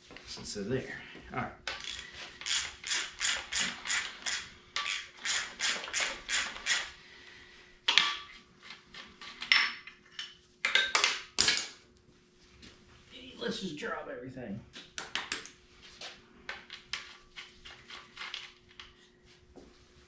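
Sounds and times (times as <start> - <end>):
ratchet wrench clicking: 1.7 - 6.9.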